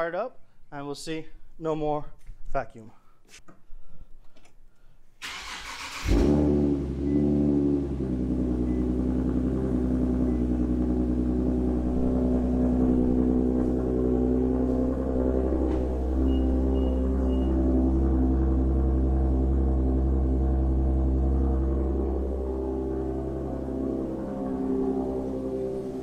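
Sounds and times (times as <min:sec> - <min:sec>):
engine starter cranking: 0:05.2 - 0:06.4
car engine idling: 0:05.2 - 0:26.0.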